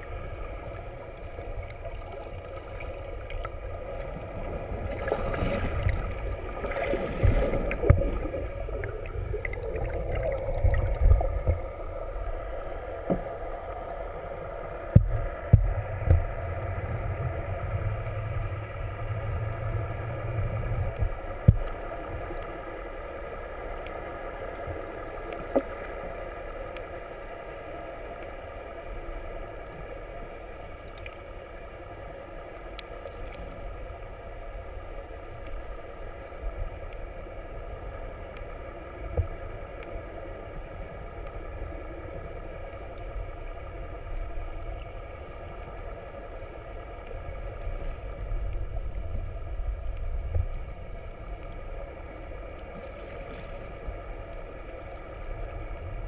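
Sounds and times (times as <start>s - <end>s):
deep rumble: 0.0s - 22.3s
boat engine hum underwater: 0.0s - 56.0s.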